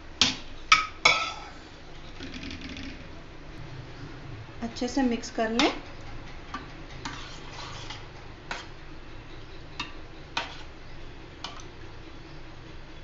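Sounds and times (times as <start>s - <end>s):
spoon scraping glass bowl: 7.0s - 8.7s.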